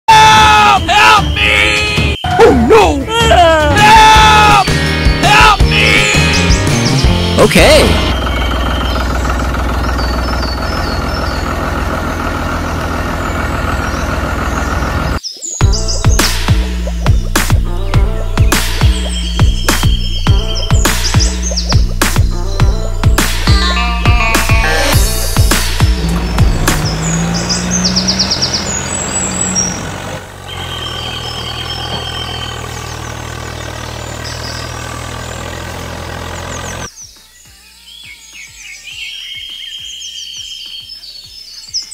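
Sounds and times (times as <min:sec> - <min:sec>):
birds chirping: 0:00.1 - 0:41.9
tractor engine idling: 0:04.5 - 0:15.2, 0:15.8 - 0:36.9.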